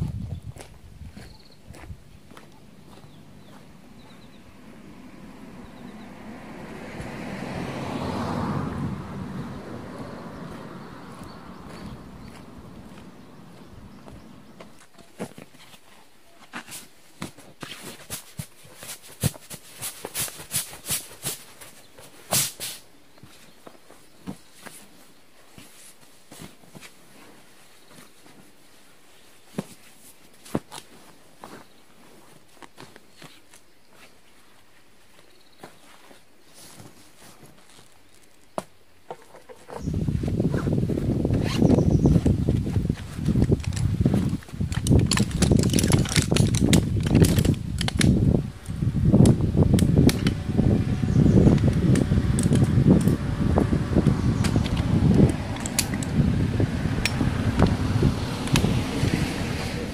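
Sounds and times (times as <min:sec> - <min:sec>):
soft fabric rustles: 0:14.0 - 0:38.6
loud uneven low rumble: 0:39.8 - 0:59.9
metal chair poles clicking and rattling: 0:43.4 - 0:48.2, 0:54.3 - 0:56.2, 0:57.0 - 0:57.8.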